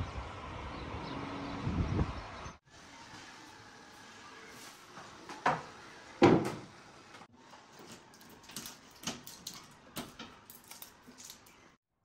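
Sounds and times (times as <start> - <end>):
decorations clicking and rustling: 7.8 - 11.8.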